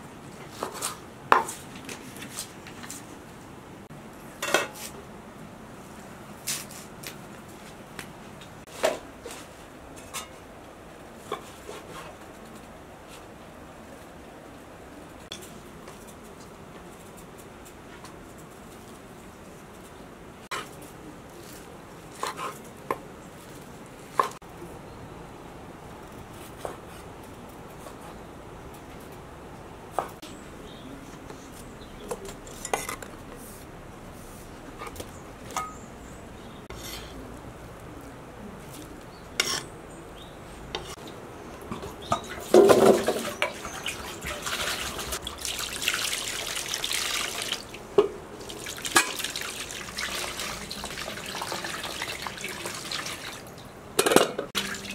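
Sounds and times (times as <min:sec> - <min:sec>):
low background noise: 0:00.0 - 0:54.9.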